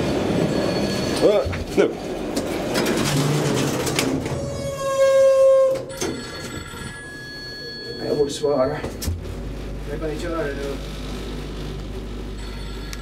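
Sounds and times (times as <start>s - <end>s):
mobile phone ringing: 0.0s - 1.5s, 5.9s - 8.8s, 12.4s - 13.0s
noisy background rumble: 8.9s - 13.0s.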